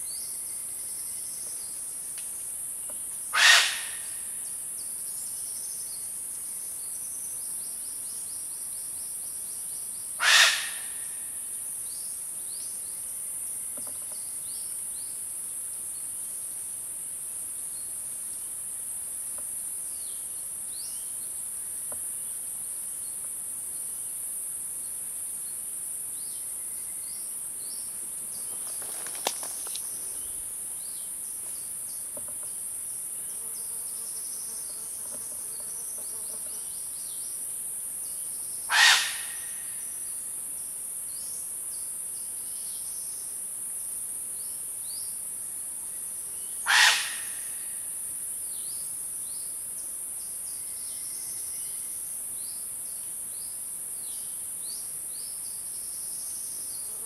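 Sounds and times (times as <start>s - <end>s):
loud animal call: 3.3s - 4.1s, 10.2s - 10.9s, 38.7s - 39.4s, 46.7s - 47.4s.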